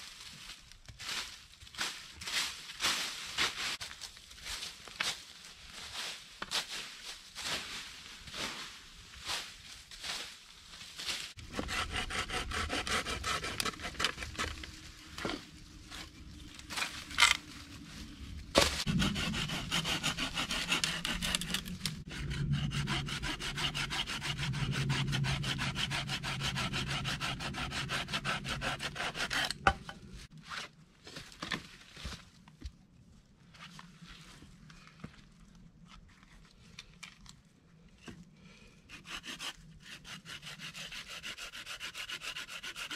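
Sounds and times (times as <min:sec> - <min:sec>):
hand saw cutting wood: 0:11.4 - 0:15.4, 0:18.6 - 0:30.1, 0:38.9 - 0:42.9.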